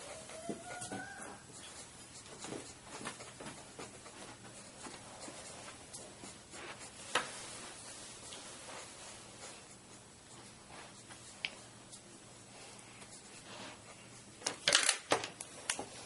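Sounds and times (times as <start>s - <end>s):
marker pen scratching on paper: 0.0s - 7.9s.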